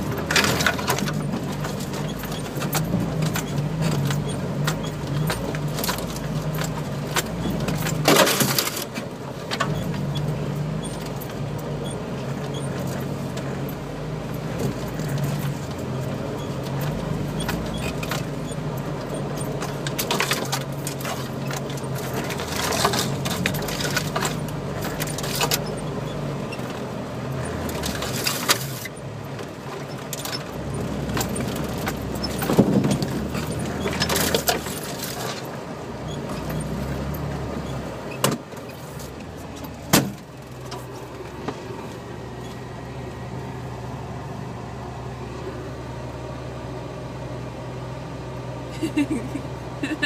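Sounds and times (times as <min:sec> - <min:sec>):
knocks of vehicle jolting: 0:00.0 - 0:10.3, 0:19.1 - 0:25.9, 0:27.5 - 0:35.6, 0:38.1 - 0:41.7
off-road vehicle engine running: 0:00.0 - 0:50.0.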